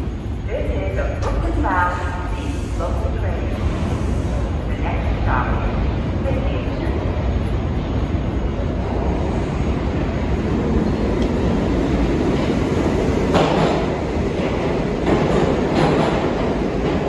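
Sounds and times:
subway train rumbling: 0:00.0 - 0:17.0
wheels clacking over rail joints: 0:13.2 - 0:17.0.

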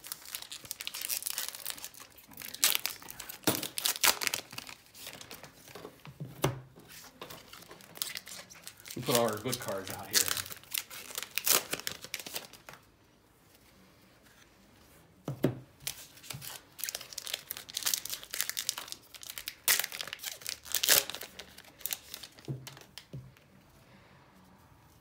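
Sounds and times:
card pack wrappers tearing and crinkling: 0:00.0 - 0:05.7, 0:07.3 - 0:12.8, 0:15.8 - 0:23.1.

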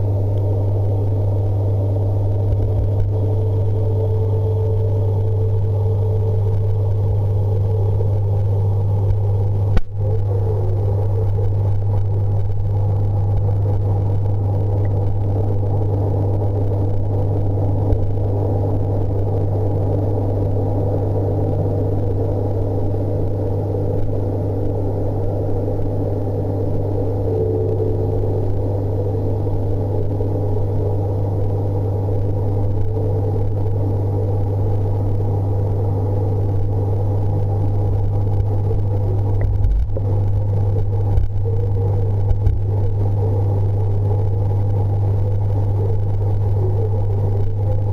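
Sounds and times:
aquarium pump humming: 0:00.0 - 0:47.9.

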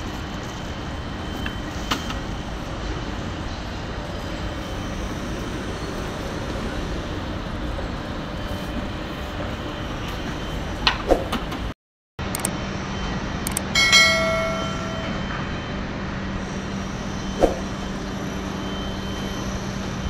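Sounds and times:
short click: 0:13.4 - 0:13.7.

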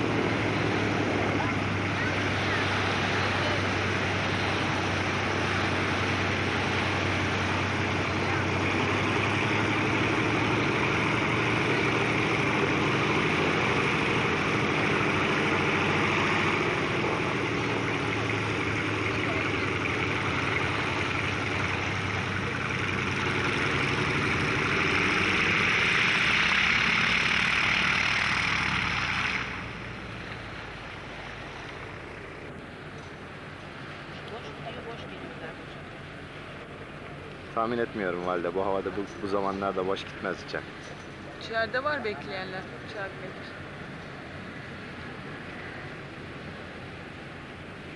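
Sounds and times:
aircraft engines droning: 0:00.0 - 0:47.9.

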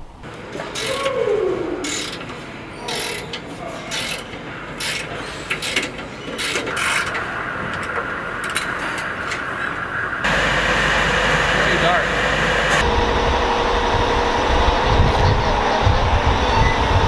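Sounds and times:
steady workshop noise: 0:00.2 - 0:17.0
socket wrench turning: 0:01.9 - 0:07.2.

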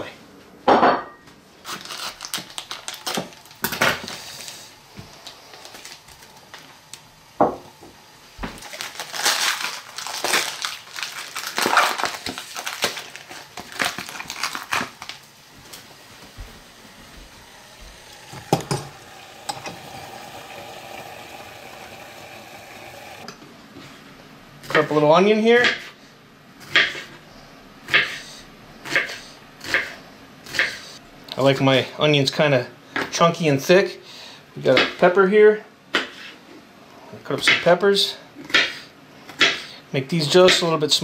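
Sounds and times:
food wrapping crinkling: 0:01.6 - 0:07.1, 0:08.6 - 0:19.2
faint steady hum: 0:02.2 - 0:24.7.

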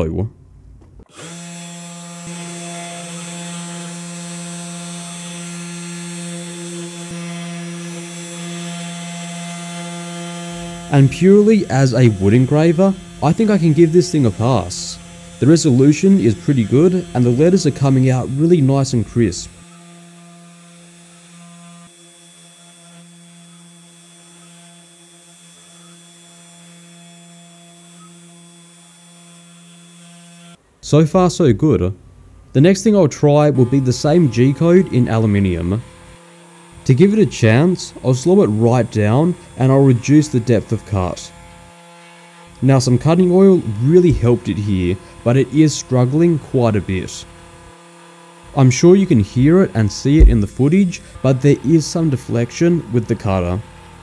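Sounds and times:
engraving bit cutting wood: 0:01.0 - 0:30.6, 0:32.8 - 0:54.0
spindle motor humming: 0:01.1 - 0:30.6, 0:33.5 - 0:54.0.

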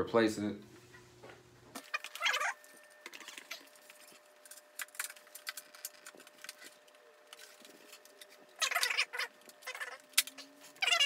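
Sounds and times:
plastic parts clicking and rattling: 0:03.1 - 0:09.0.

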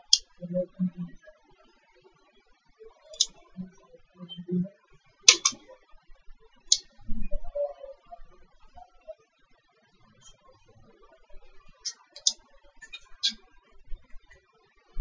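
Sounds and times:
computer mouse clicks: 0:03.2 - 0:03.4, 0:05.3 - 0:05.6, 0:11.9 - 0:12.4.

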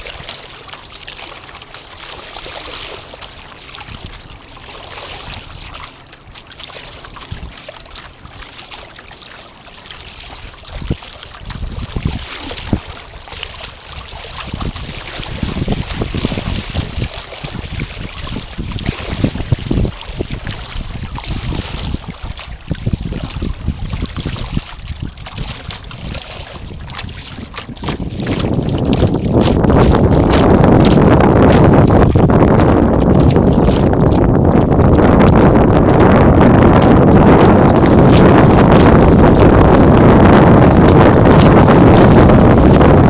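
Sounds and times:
water washing along boat hull: 0:00.0 - 0:43.0
wind buffeting microphone: 0:00.0 - 0:43.0.

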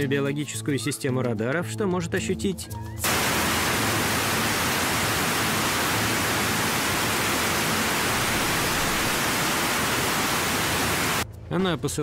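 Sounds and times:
loud steady hiss: 0:03.0 - 0:11.2.

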